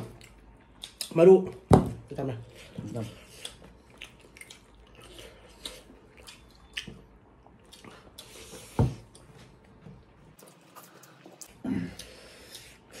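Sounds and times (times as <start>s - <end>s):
wet chewing and squishing: 0.0s - 1.3s, 2.5s - 9.4s.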